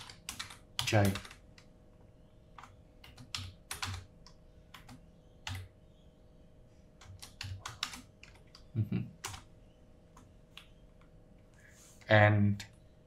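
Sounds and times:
keyboard typing: 0.0 - 1.7, 2.5 - 5.7, 7.0 - 9.5
faint steady hum: 0.0 - 13.0.

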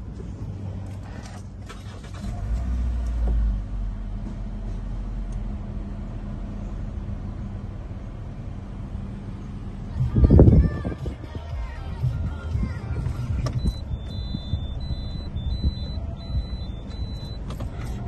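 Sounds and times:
car engine idling: 0.0 - 18.0
low rumble: 6.3 - 18.0.

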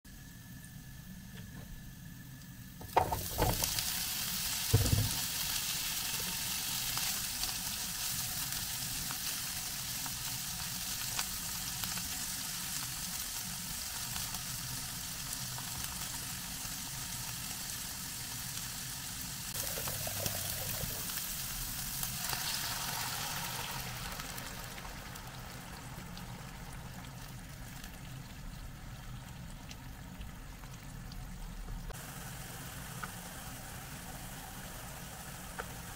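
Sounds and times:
loud knocks: 2.8 - 3.6, 4.7 - 5.2
asparagus sizzling in frying pan: 2.8 - 29.2, 31.9 - 35.9.

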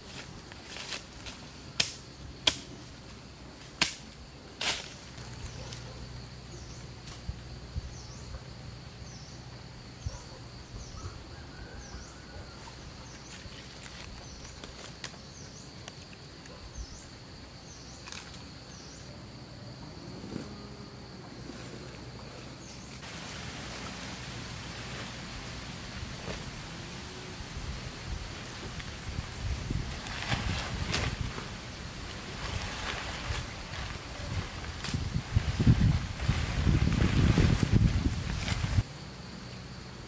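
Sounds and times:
knife chopping into ground: 1.8 - 2.8.

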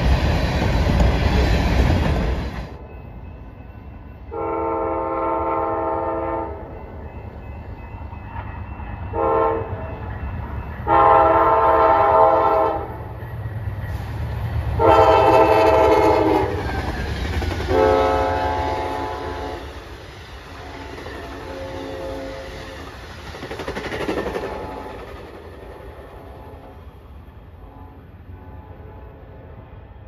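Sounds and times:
train rumble: 0.0 - 30.0
train air horn blasts: 4.3 - 6.6, 9.1 - 10.0, 10.8 - 13.1, 14.8 - 16.6, 17.7 - 19.8, 20.5 - 22.9, 26.0 - 26.8, 27.6 - 29.8.

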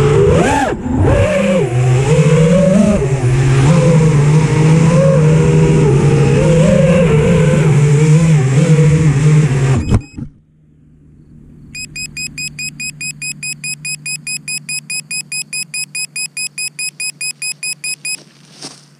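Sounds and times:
rapid high beeps: 11.8 - 18.2.

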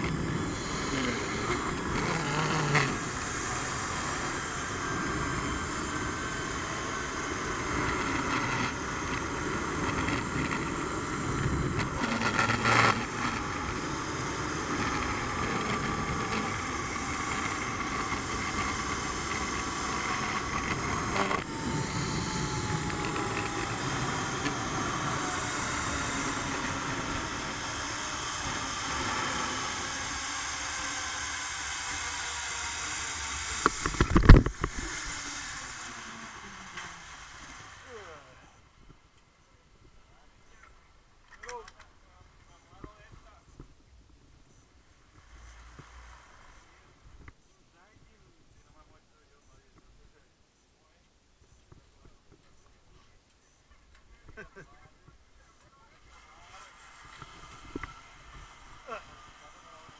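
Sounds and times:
pulley whirring on cable: 0.0 - 38.6, 56.1 - 59.9.

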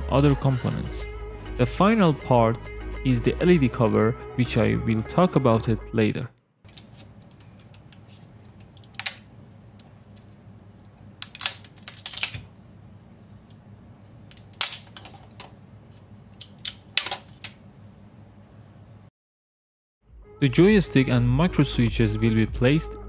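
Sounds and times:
steady low hum: 6.2 - 19.1.

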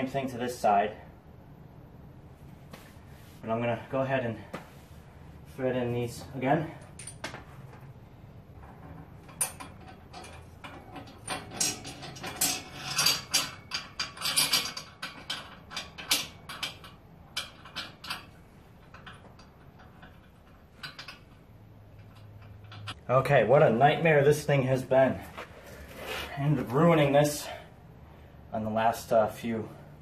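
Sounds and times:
metal bolts clinking: 6.7 - 7.5, 8.6 - 23.0.

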